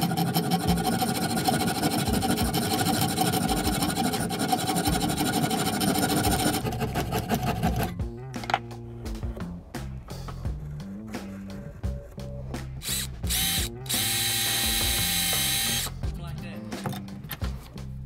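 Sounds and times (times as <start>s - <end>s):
saw cutting wood: 0.0s - 8.0s, 12.8s - 16.0s.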